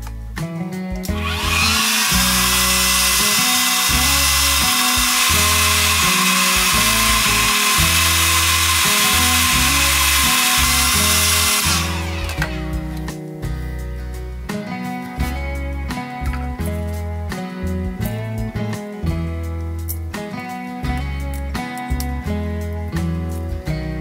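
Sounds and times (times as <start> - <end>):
guitar music: 0.0 - 24.0
hair dryer switch: 1.1 - 12.7
hair dryer blowing: 1.2 - 12.9.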